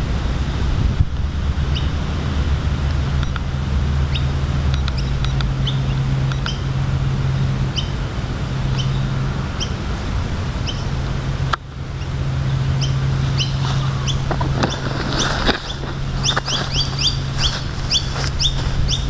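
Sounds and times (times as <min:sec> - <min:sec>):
wind rumble on microphone: 0:00.0 - 0:19.0
small birds chirping: 0:01.7 - 0:02.0, 0:03.2 - 0:08.0, 0:08.6 - 0:09.8, 0:10.6 - 0:11.1, 0:11.9 - 0:19.0.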